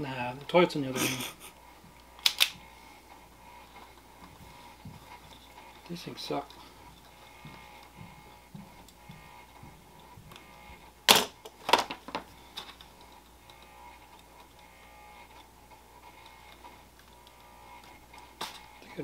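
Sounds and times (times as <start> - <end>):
wire stripper clicking: 2.0 - 2.7.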